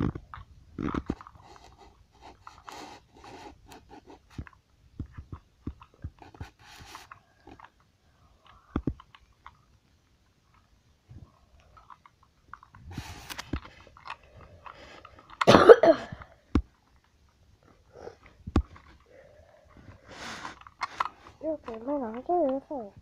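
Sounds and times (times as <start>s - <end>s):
plastic toy clicks and rustling: 0.0s - 4.6s, 5.2s - 10.7s, 11.5s - 15.5s, 19.8s - 23.0s.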